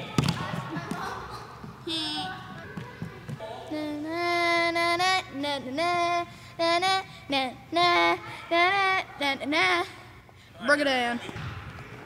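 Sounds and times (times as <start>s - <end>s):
boy singing wordless tune: 3.7s - 10.3s.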